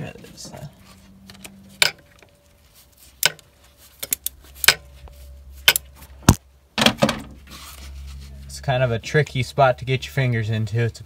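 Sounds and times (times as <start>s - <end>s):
hand tool clicking on metal: 4.0s - 4.9s.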